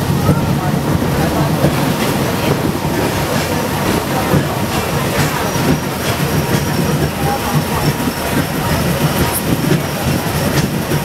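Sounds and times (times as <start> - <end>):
tram wheels rumbling on rails: 0.0 - 11.0.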